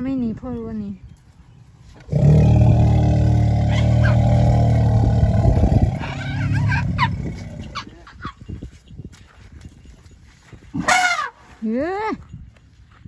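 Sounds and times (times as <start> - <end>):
elephant low call: 2.1 - 7.9.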